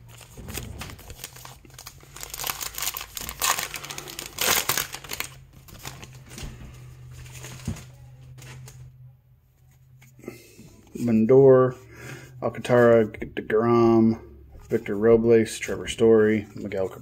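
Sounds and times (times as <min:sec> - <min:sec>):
plastic wrapper crinkling and tearing: 0:00.0 - 0:06.4.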